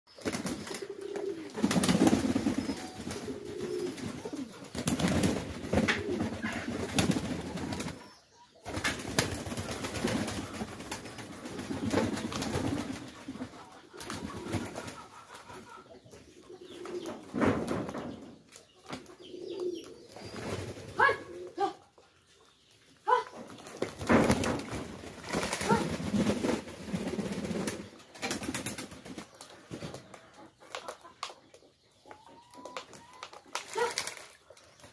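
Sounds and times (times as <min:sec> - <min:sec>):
wings flapping: 0:00.1 - 0:08.0, 0:08.6 - 0:15.5, 0:23.5 - 0:30.0, 0:32.8 - 0:34.6
pigeons cooing: 0:00.4 - 0:08.2, 0:09.5 - 0:17.6, 0:18.9 - 0:21.9, 0:25.3 - 0:28.0.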